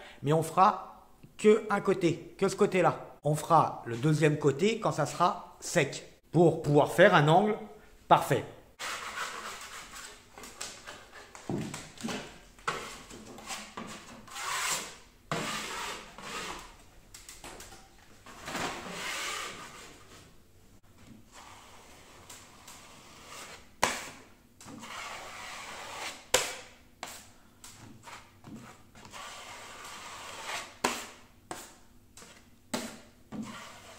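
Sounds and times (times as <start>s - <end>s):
taping knife scraping plaster: 8.8s - 11.4s, 12.7s - 16.8s, 21.3s - 33.9s.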